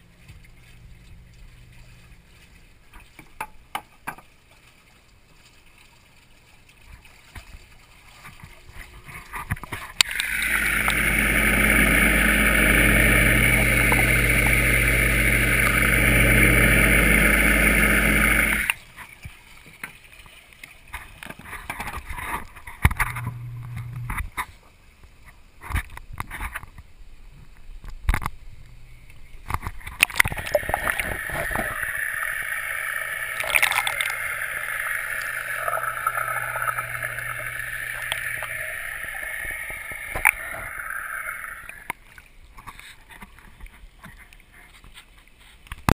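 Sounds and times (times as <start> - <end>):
water gurgling rush: 5.5 - 19.5, 29.4 - 42.2
low hum: 10.0 - 18.8, 23.0 - 24.2, 30.0 - 42.0.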